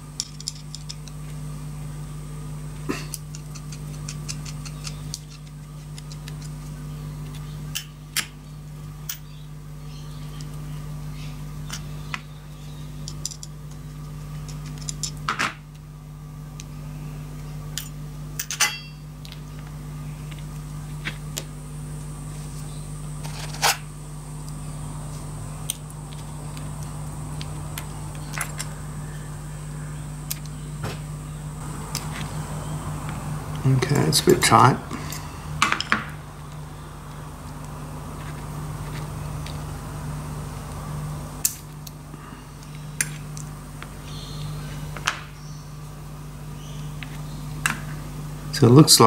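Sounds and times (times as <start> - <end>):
steady low hum: 0.0 - 49.0
small metal parts clicking: 0.2 - 1.2, 13.0 - 13.6.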